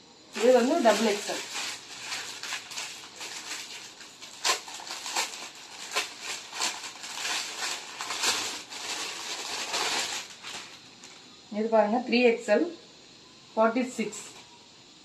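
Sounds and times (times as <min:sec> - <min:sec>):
plastic packet crinkling: 0:00.4 - 0:11.2.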